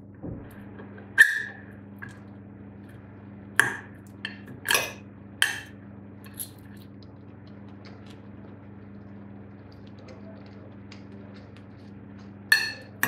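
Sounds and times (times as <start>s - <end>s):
low hum: 0.0s - 13.0s
cutlery clinking and scraping on plate: 12.5s - 13.0s.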